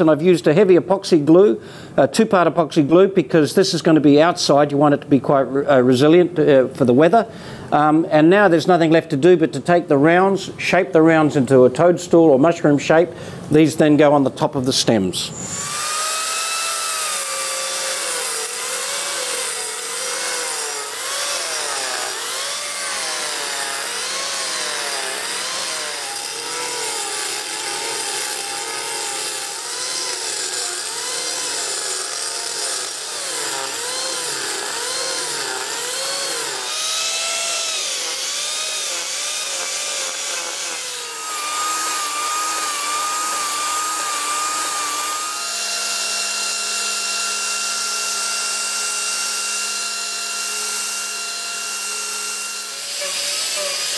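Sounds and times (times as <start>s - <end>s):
small grinder high whine: 15.3s - 53.9s
angle grinder cutting wood: 15.4s - 53.9s.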